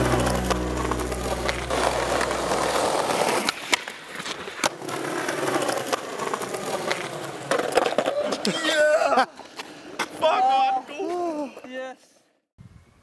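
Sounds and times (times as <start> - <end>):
skateboard wheels rolling on paving: 0.1 - 11.7
skateboard clacks: 1.5 - 8.5.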